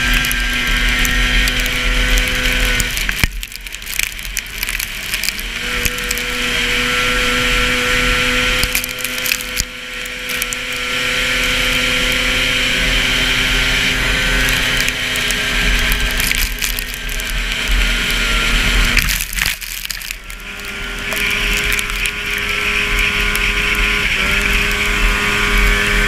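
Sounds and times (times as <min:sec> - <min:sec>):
snowmobile engine running hard: 0:00.0 - 0:26.0.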